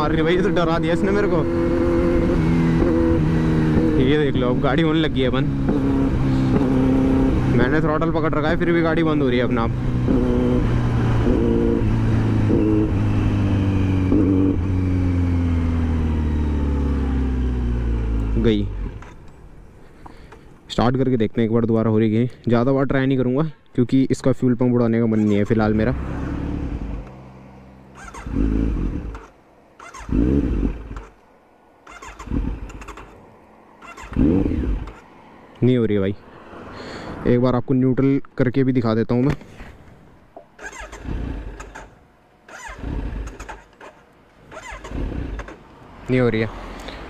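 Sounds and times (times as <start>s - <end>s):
motorcycle engine sputtering: 0.0s - 20.6s, 27.8s - 35.1s, 40.4s - 46.4s
motorcycle electric starter cranking: 18.2s - 19.5s, 27.9s - 31.2s, 31.8s - 35.1s, 40.6s - 45.7s.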